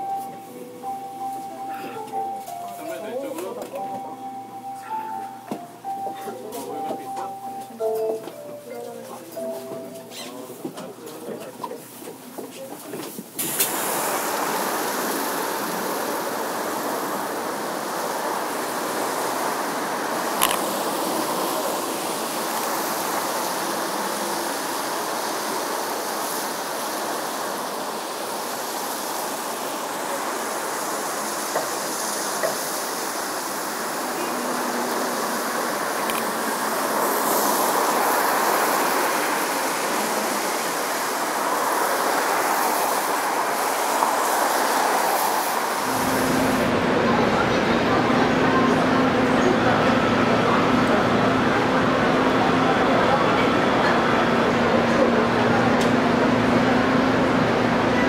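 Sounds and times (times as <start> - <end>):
tyres hissing on wet asphalt: 13.1 - 58.0.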